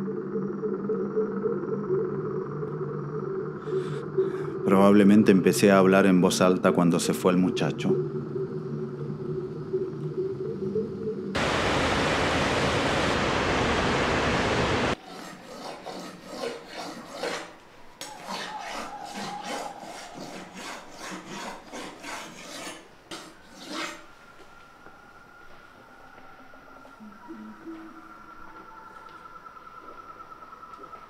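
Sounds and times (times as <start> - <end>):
loud steady hiss: 11.4 - 15.0
knife scraping on sharpening stone: 15.1 - 17.5, 18.2 - 24.0.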